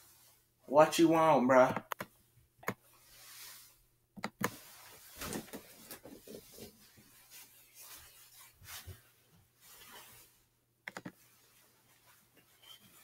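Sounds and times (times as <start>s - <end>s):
faint rustling: 4.4s - 13.0s.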